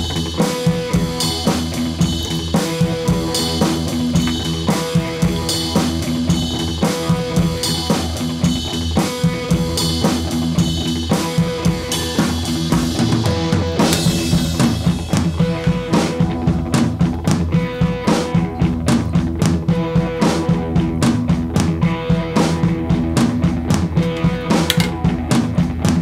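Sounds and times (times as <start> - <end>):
instrumental music with drum beat: 0.0 - 26.0.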